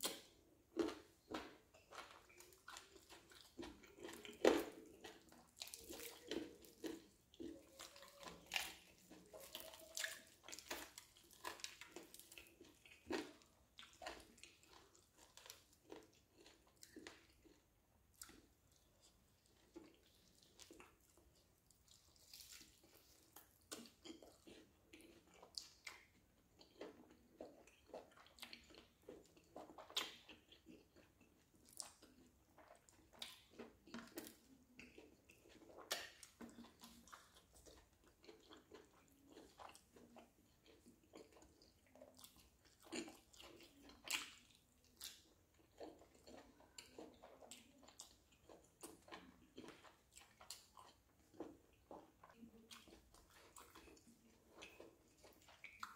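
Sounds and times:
chewing chicken: 0.0 - 55.9.

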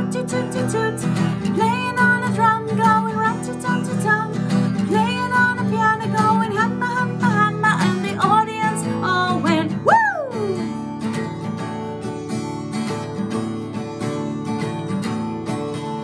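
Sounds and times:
woman singing: 0.0 - 10.8
strummed acoustic guitar: 0.0 - 16.0.

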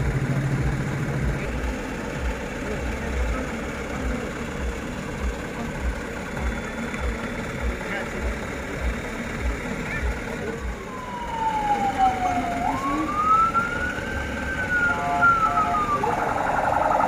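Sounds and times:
truck engine idling: 0.0 - 17.0
electronic siren tone: 10.9 - 17.0.

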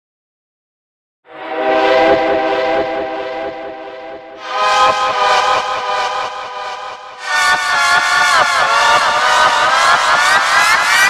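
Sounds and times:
train horn blasts: 1.3 - 7.8.

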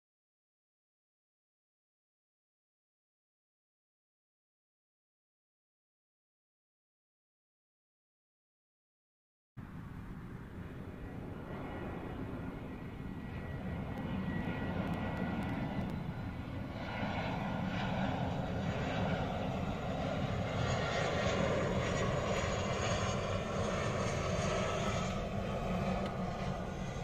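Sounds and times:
jet engines roaring: 9.6 - 27.0.

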